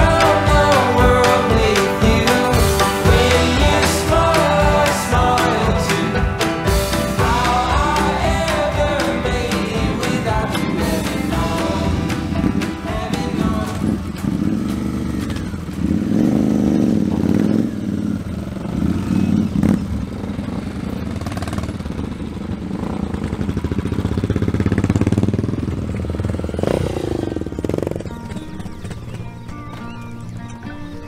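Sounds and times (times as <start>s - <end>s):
motorcycle engines revving: 0.0s - 31.0s.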